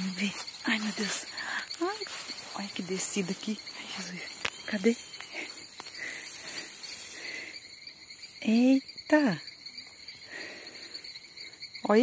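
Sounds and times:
rustling in grass: 0.0 - 8.7
insects chirring: 0.0 - 12.0.

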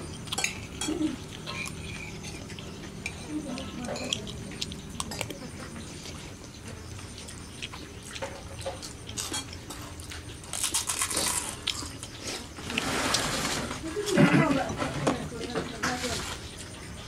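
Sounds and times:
steady low hum: 0.0 - 17.0
spoons clicking on plates: 0.2 - 5.4.

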